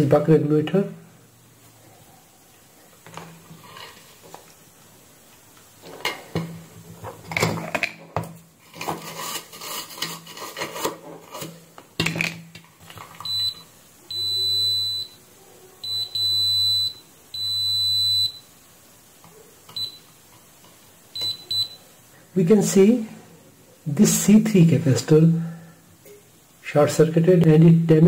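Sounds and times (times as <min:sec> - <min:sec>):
metal probes scraping circuit board: 0:08.7 - 0:11.6
multimeter continuity beeps: 0:13.2 - 0:15.2, 0:15.8 - 0:18.5, 0:19.7 - 0:20.1, 0:21.2 - 0:21.8.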